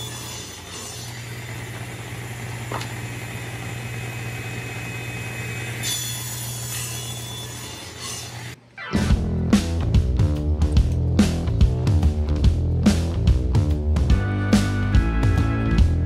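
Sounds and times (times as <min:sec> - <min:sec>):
saw blade whine: 0:00.0 - 0:08.6
table saw running: 0:00.0 - 0:08.6.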